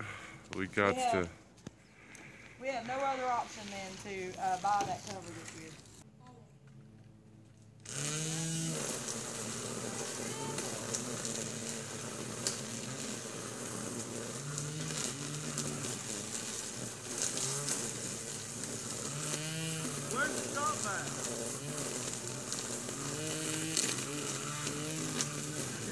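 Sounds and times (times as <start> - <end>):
string trimmer running: 6.8 - 25.9.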